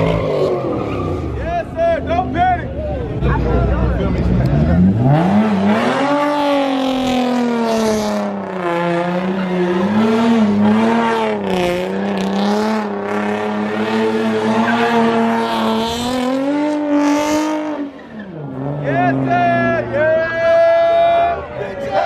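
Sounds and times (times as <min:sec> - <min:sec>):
car engine at high revs: 0:03.1 - 0:20.0.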